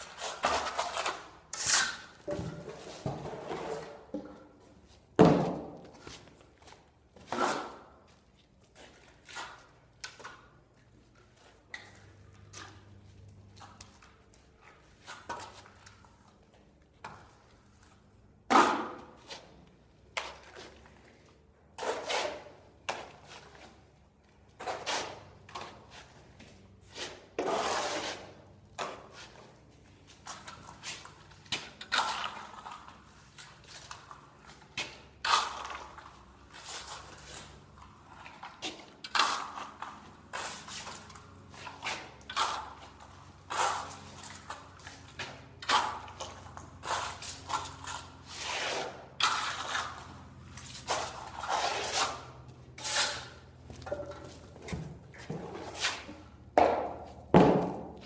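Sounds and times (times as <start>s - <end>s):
trowel scraping across a wall: 0.0s - 4.2s, 7.2s - 8.1s, 21.8s - 23.8s, 24.6s - 29.6s, 30.2s - 54.0s, 55.3s - 56.4s.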